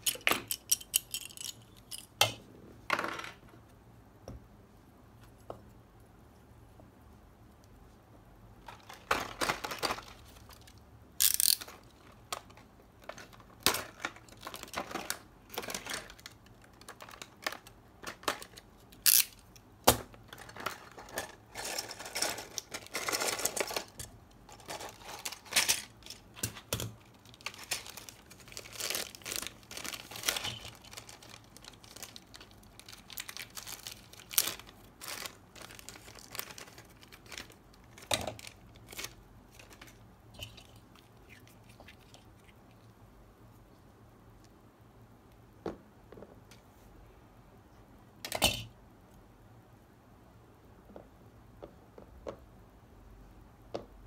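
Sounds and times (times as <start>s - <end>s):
plastic parts clicking: 0.0s - 2.4s, 8.7s - 28.1s
plastic packaging crinkling: 8.6s - 19.4s, 20.3s - 42.8s.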